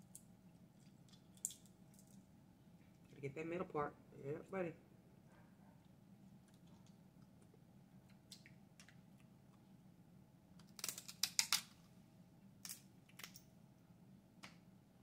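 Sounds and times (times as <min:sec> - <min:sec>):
crab shells cracking: 0:10.6 - 0:11.7.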